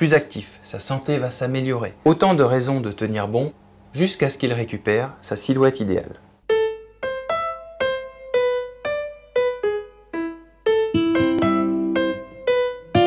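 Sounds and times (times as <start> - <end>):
held keyboard chords: 6.4 - 13.0
keyboard melody: 6.4 - 13.0.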